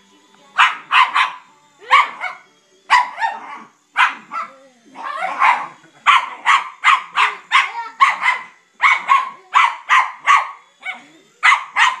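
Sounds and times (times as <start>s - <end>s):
dog barking excitedly: 11.4s - 12.0s.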